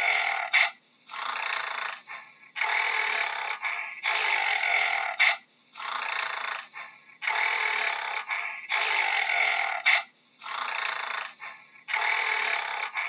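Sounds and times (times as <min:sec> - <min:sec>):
gorilla rasping: 0:00.0 - 0:13.0.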